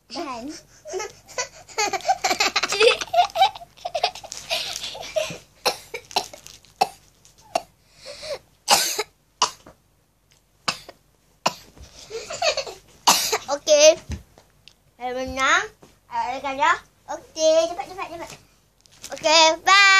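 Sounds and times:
girls laughing: 0.9 - 5.4
breathy bursts: 7.8 - 8.5.

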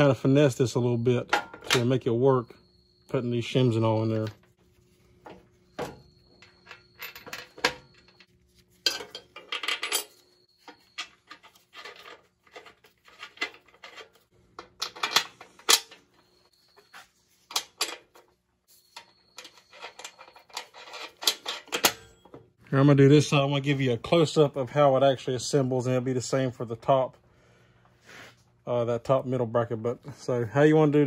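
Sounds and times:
small metal parts clinking: 5.2 - 22.4.

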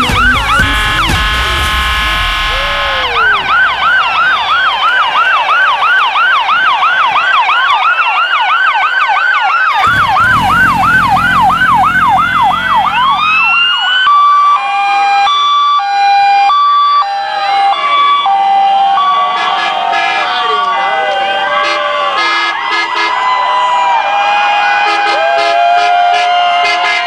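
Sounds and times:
low vehicle rumble: 0.0 - 5.2, 9.7 - 13.8
fast yelping siren: 0.0 - 26.9
rising and falling siren wail: 0.0 - 27.0
two-tone hi-lo siren: 0.0 - 27.0.

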